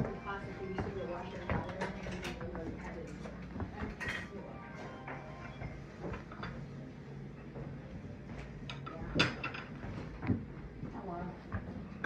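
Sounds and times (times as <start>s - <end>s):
china plates clinking: 1.2s - 5.1s, 8.7s - 9.8s.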